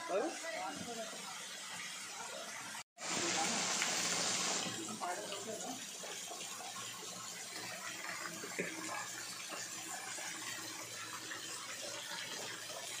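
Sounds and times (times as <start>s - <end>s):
water splashing onto rocks: 3.0s - 4.8s.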